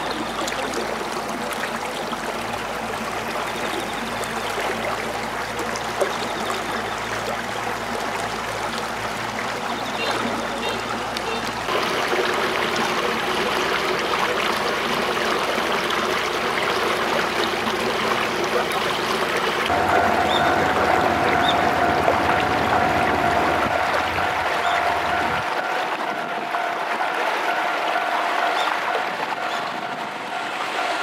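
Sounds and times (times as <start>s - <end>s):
water rushing in channel: 0.0s - 31.0s
steady humming tone: 19.2s - 31.0s.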